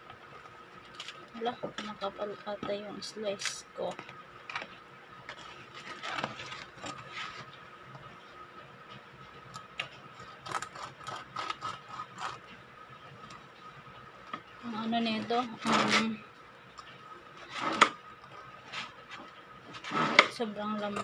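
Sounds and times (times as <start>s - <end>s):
bread knife sawing through crust: 10.4s - 12.5s.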